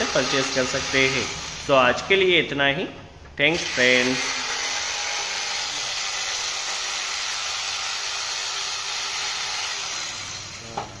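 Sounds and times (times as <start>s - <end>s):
jigsaw cutting wood: 3.6s - 10.6s.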